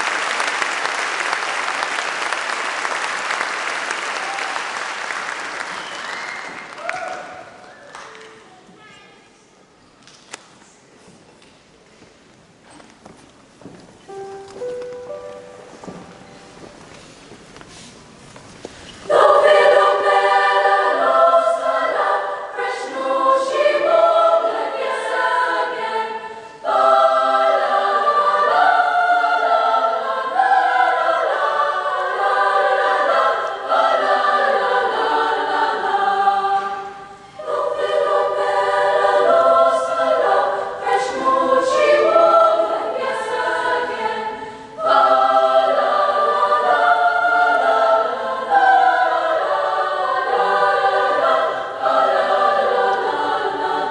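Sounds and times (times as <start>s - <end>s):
choir singing: 18.9s - 53.9s.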